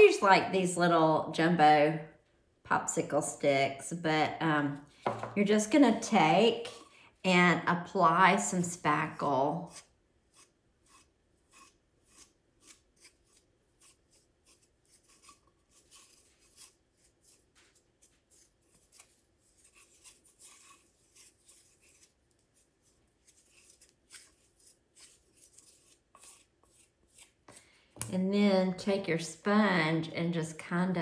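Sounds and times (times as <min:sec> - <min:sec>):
wooden stick scraping on ceramic: 0:09.5 - 0:28.2.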